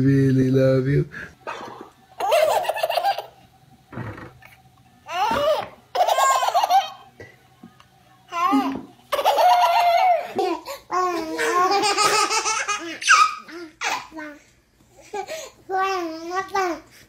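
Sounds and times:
babies laughing: 1.5s - 3.4s, 5.1s - 7.1s, 8.3s - 14.2s.

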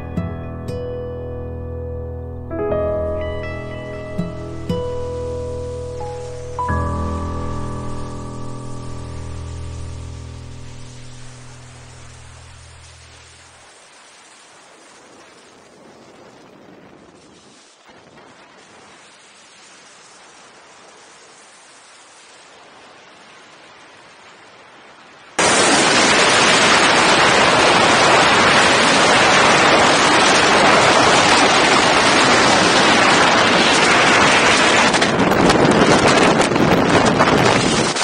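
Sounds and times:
faint hiss: 3.4s - 32.4s
wind buffeting microphone: 26.5s - 38.0s.

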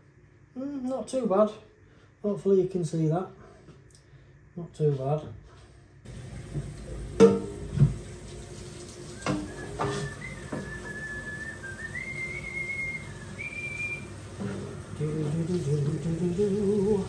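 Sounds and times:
drawer knocking against metal sink: 6.5s - 8.0s
man whistling a tune: 9.1s - 14.2s.

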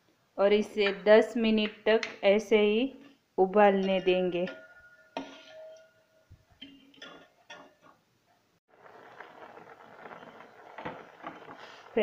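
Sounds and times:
water boiling in pot: 8.7s - 12.0s.

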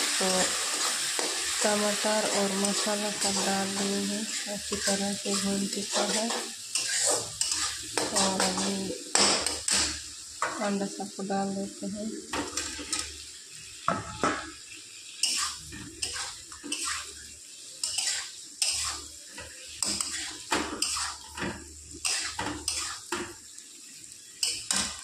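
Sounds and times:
metal spatula scraping a pan: 0.1s - 10.0s, 12.4s - 13.1s, 15.2s - 23.2s.

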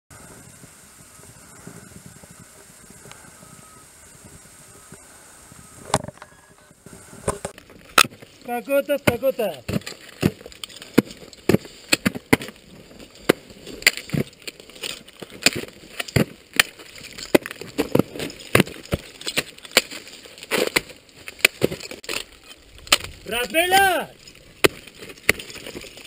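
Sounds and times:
ice axe striking ice: 7.3s - 26.0s
ice chipping and breaking: 7.6s - 26.0s.

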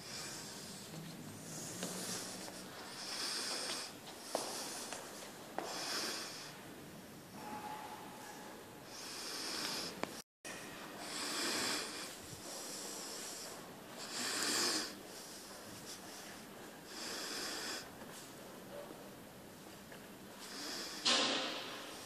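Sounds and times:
person breathing: 0.0s - 6.6s, 7.4s - 10.2s, 10.9s - 17.9s.

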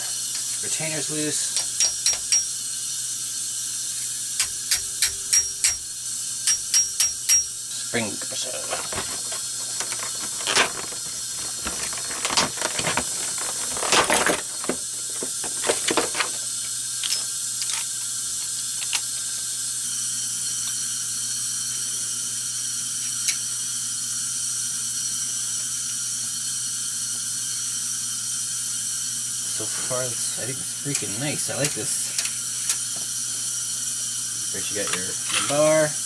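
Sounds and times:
metal tool clicking and rattling: 8.7s - 16.4s, 17.0s - 19.1s.

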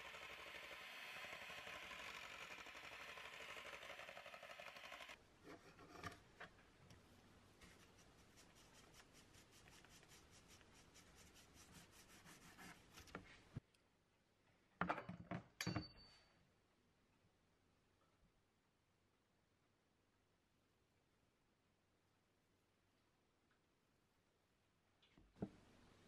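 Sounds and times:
electric hand mixer whirring: 0.0s - 5.2s.

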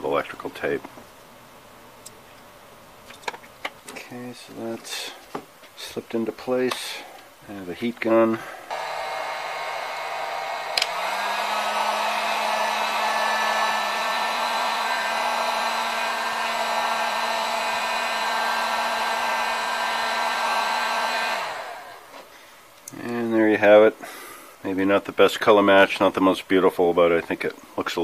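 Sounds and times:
heat gun blowing: 8.4s - 22.5s
heat gun switch click: 10.7s - 11.1s.

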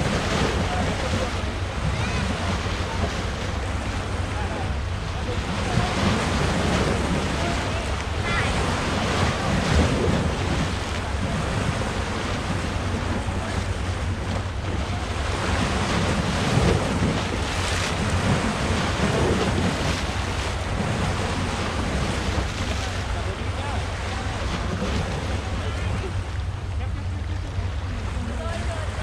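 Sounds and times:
sea surf on rocky shore: 0.0s - 29.0s
wind buffeting microphone: 0.0s - 29.0s.

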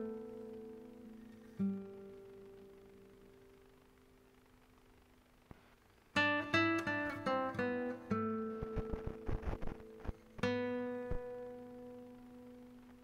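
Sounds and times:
plucked acoustic guitar notes: 6.2s - 13.0s.

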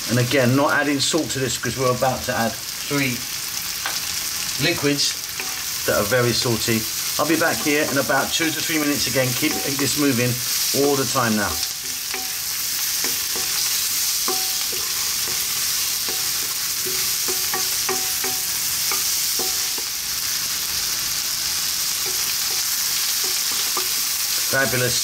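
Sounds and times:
vegetables sizzling in hot oil: 0.0s - 25.0s
wooden spoon scraping a pan: 7.0s - 20.0s, 22.0s - 24.4s.

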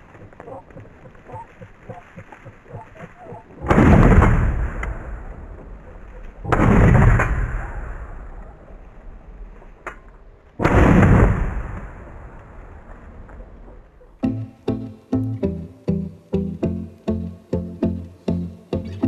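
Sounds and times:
shotgun shots echoing: 3.6s - 5.6s, 6.4s - 8.4s, 10.6s - 12.6s.

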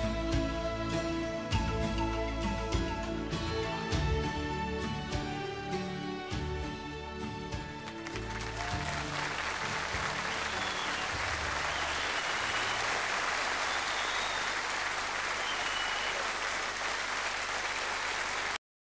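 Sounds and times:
song: 7.3s - 14.9s
audience applauding: 7.8s - 18.6s.

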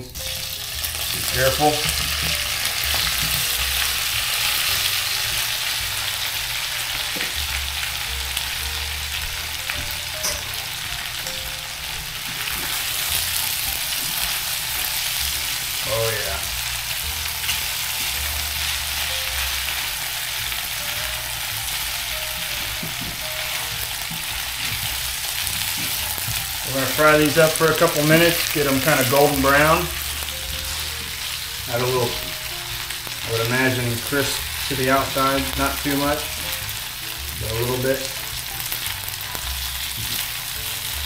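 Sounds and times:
dumplings sizzling in a frying pan: 0.0s - 41.0s.

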